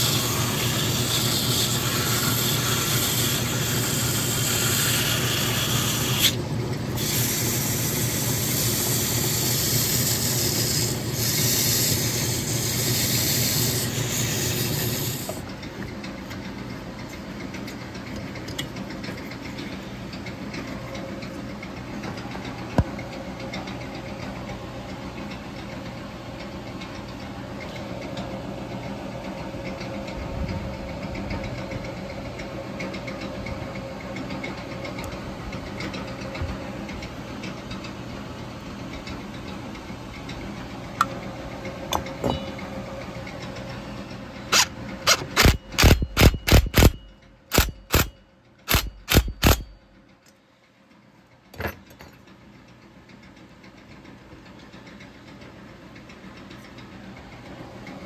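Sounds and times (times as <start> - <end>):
metal lathe running: 0.0 - 17.3, 33.0 - 49.7
power tool short bursts: 44.5 - 48.1, 48.7 - 49.7.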